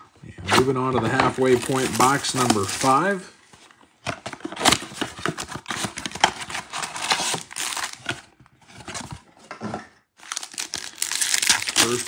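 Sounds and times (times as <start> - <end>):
plastic wrappers crinkling: 1.0 - 3.2, 4.7 - 8.3, 10.2 - 12.0
cardboard box tearing: 4.4 - 9.1.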